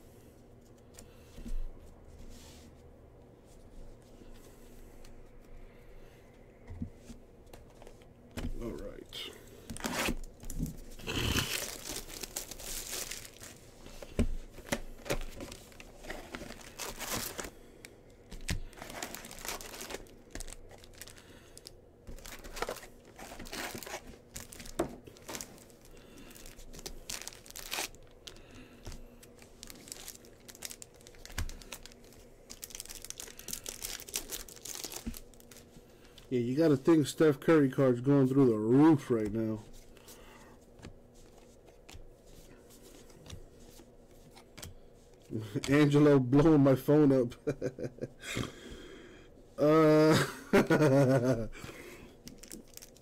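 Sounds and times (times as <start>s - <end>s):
plastic wrappers tearing and crinkling: 9.1s - 17.6s, 18.3s - 35.7s, 52.2s - 53.0s.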